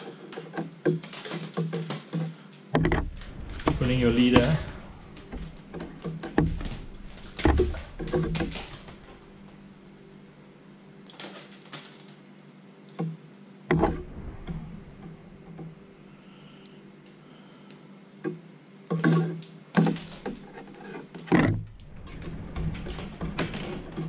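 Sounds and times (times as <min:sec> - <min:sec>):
stiff line clicks and slaps: 0:00.0 - 0:09.6, 0:18.2 - 0:24.0
low hum: 0:02.8 - 0:11.0, 0:13.6 - 0:17.7, 0:19.8 - 0:24.0.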